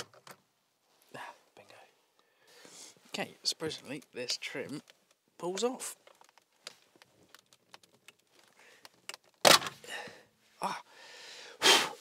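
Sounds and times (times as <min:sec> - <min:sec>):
plastic clatter: 0:06.0 - 0:09.8
plastic clips cracking: 0:06.0 - 0:09.8.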